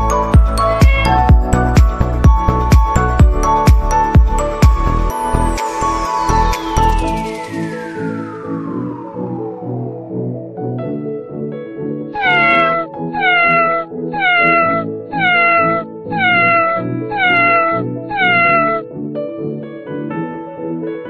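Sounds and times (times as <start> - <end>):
soft background music: 0.0 - 21.0
cat meowing: 0.6 - 1.3, 12.2 - 18.9.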